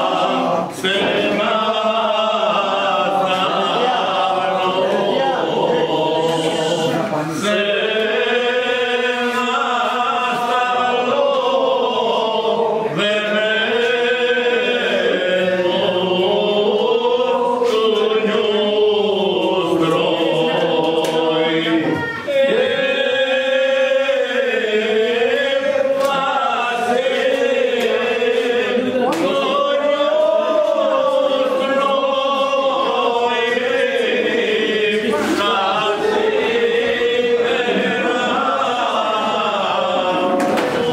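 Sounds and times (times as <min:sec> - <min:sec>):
voices singing a chant-like melody: 0:00.0 - 0:40.9.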